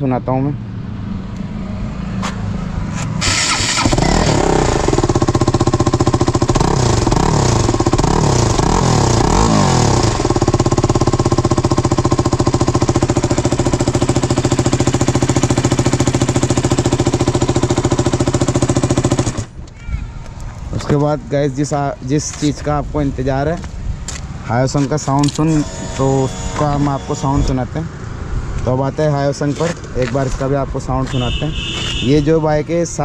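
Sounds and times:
motorcycle engine revving: 1.0s - 19.6s, 24.3s - 30.6s
motorcycle engine idling: 3.3s - 20.4s.

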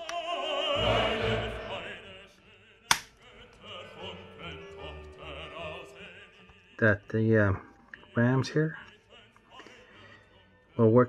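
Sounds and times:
operatic singing with orchestra: 0.0s - 7.2s
sharp click: 2.9s - 3.1s.

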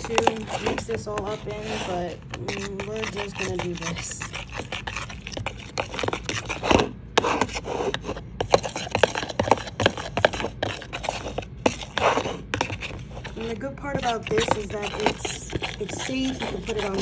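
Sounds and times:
metal spoon scraping a bowl: 0.0s - 17.0s.

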